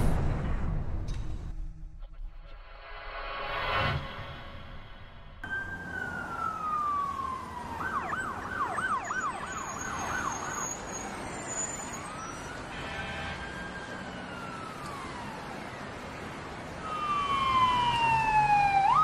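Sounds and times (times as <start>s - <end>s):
emergency vehicle siren: 5.4s - 19.0s.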